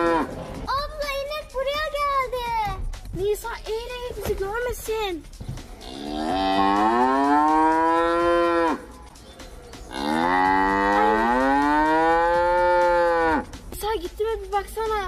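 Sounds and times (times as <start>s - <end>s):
cow mooing: 0.0s - 0.4s, 5.8s - 8.9s, 9.9s - 13.4s.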